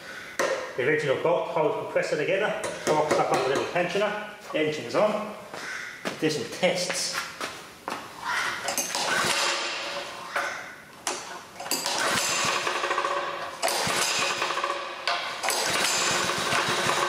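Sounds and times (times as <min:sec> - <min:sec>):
recoil starter pulls: 0:11.2 - 0:17.0
engine cranking with rattling clatter: 0:11.6 - 0:17.0.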